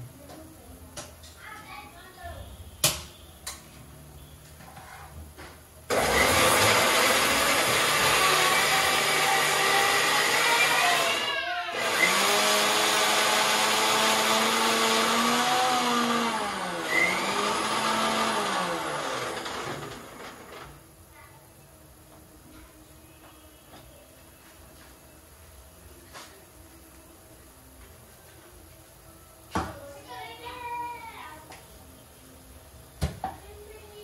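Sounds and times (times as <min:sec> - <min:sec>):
electric grinder running: 0:05.9 - 0:20.6.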